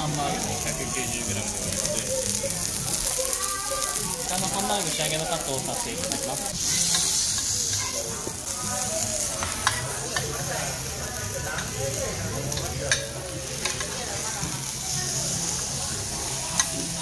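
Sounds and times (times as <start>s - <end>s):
meat sizzling on hot iron: 0.0s - 17.0s
cutlery clinking on dishes: 12.5s - 14.0s.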